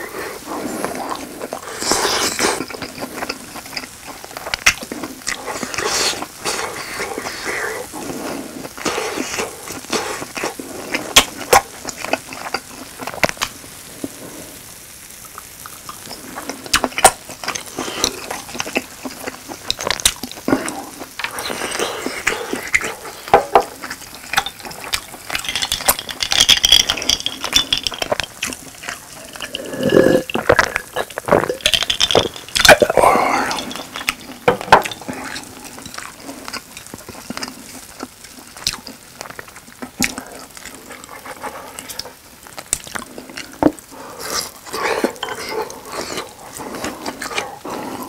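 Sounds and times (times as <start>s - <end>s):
chewing: 0.0s - 48.0s
light hiss: 0.0s - 48.0s
gulping a drink: 15.2s - 48.0s.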